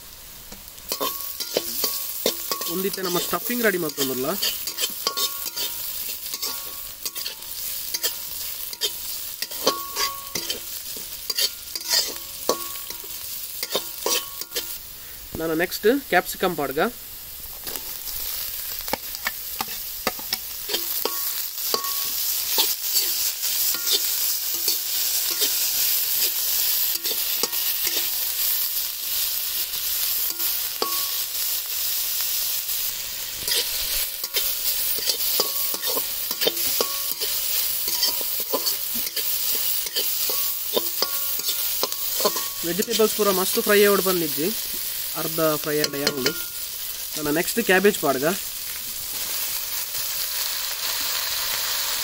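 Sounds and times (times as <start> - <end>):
vegetables sizzling in oil: 0.0 - 52.0
metal spatula scraping pan: 0.9 - 14.8, 19.2 - 28.1, 33.4 - 43.7.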